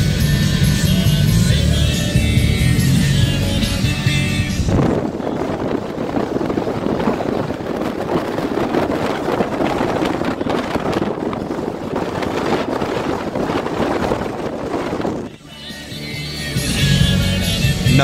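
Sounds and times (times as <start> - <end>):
wind buffeting microphone: 0.0 - 15.4
road noise: 0.0 - 18.0.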